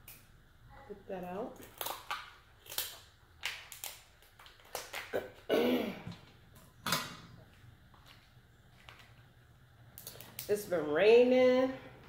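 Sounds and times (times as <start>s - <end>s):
shears cracking crab shell: 1.6s - 5.2s.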